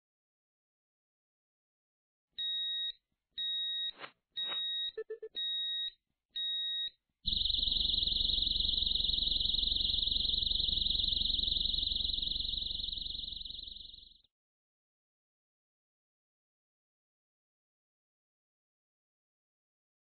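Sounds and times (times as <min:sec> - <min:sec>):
alarm short high beeps: 0:03.8 - 0:05.9
continuous shrill alarm tone: 0:07.3 - 0:14.2.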